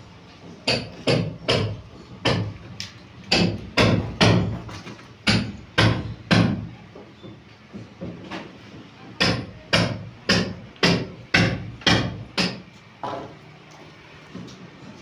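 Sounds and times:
hammer blows ringing: 9.2 - 13.2.

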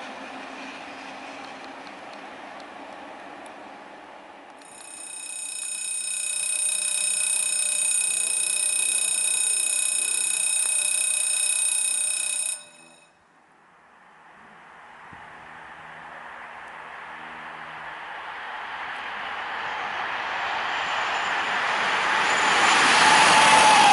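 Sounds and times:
passing train: 0.0 - 23.9
level crossing bell ringing: 4.6 - 13.2.

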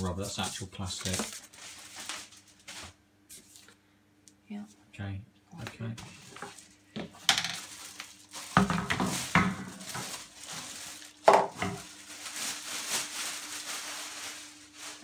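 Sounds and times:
plastic wrapping crinkling: 0.4 - 3.7, 6.1 - 15.0.

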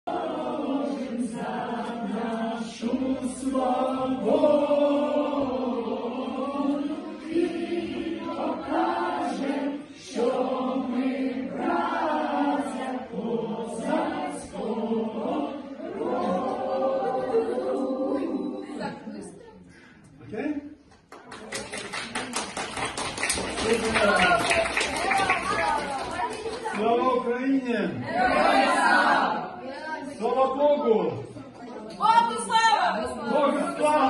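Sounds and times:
group singing a hymn unaccompanied: 0.1 - 19.1, 28.0 - 29.6.

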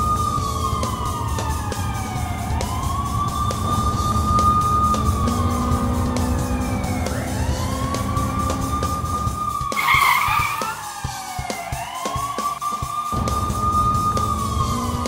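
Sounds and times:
low vehicle rumble: 0.0 - 11.0
police siren wailing: 0.0 - 15.0.

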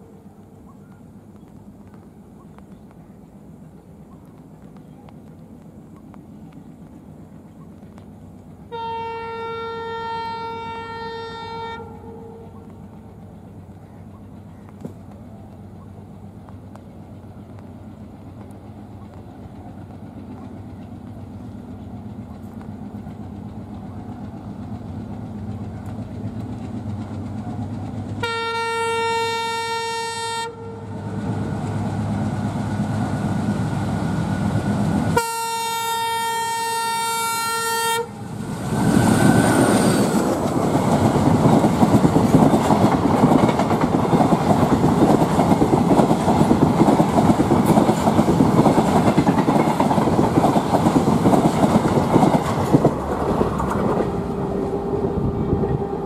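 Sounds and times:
diesel locomotive engine running: 0.0 - 56.0
train horn: 8.7 - 12.6, 28.2 - 31.1, 35.1 - 38.3, 54.0 - 56.0
coaches rattling over rail joints: 11.8 - 28.3, 38.2 - 54.8.

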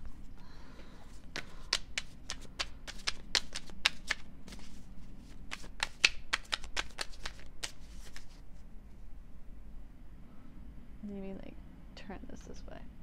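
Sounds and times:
cards being shuffled: 1.0 - 8.6.

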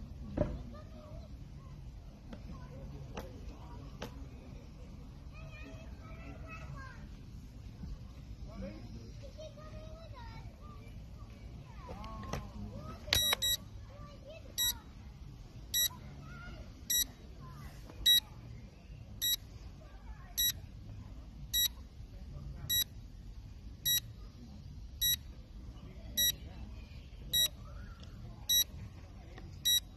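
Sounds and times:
faint voices: 0.0 - 29.9
short high electronic beeps: 13.2 - 13.6.

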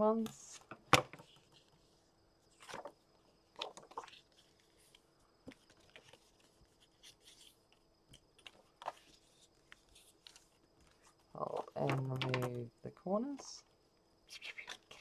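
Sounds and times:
cardstock rustling and brushing: 0.5 - 3.0, 3.6 - 12.6.

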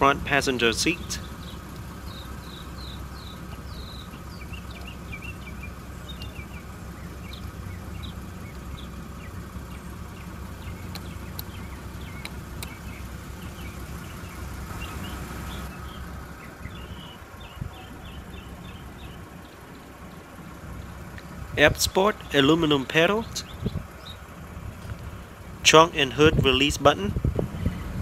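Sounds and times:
small birds chirping: 0.0 - 25.6
low steady rumble: 0.0 - 28.0
sharp clicks: 10.8 - 13.0.

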